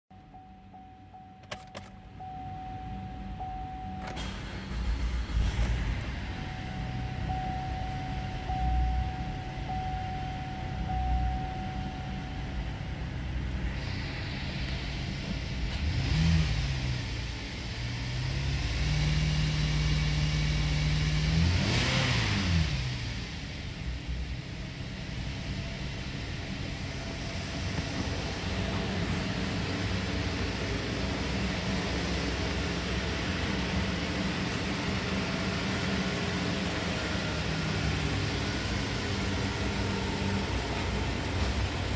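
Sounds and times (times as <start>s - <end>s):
dashboard warning chime: 0.1s - 4.8s, 5.4s - 13.2s
car engine idling and revving: 0.2s - 41.9s.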